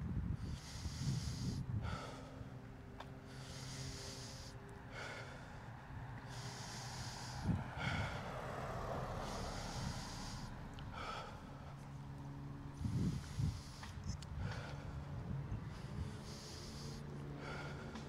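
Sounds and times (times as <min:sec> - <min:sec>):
heavy breathing: 0:00.3 - 0:18.0.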